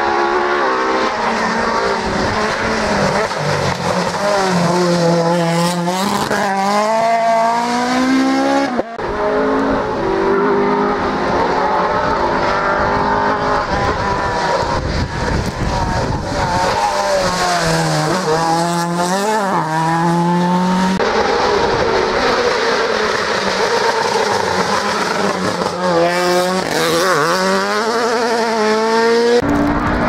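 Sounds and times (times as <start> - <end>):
rally car engines at full throttle: 0.0 - 30.0.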